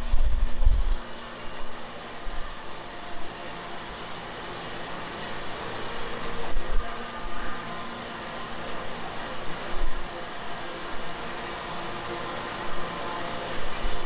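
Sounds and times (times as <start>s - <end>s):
heavy low rumble: 0.0s - 1.0s
conveyor machinery hum and hiss: 0.0s - 14.0s.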